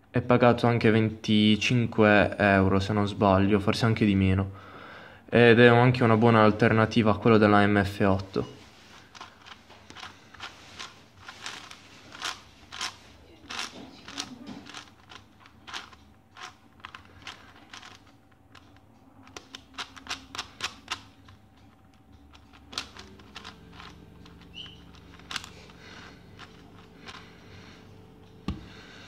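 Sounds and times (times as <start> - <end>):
plastic puzzle clicks and clacks: 8.3 - 27.3.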